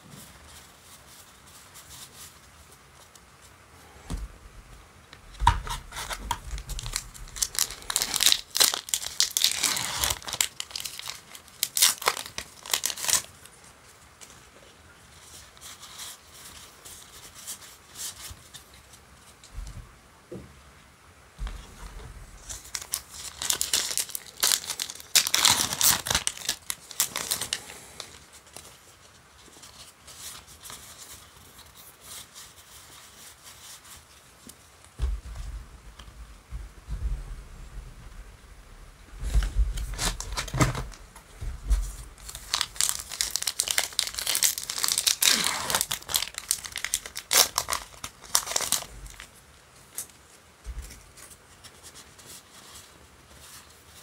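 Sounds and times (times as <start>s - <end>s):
handling of cards: 0.2s - 14.4s, 21.4s - 36.2s, 39.1s - 54.0s
foil wrapper crinkling and tearing: 5.3s - 13.6s, 21.4s - 33.9s, 39.3s - 41.1s, 41.7s - 50.2s.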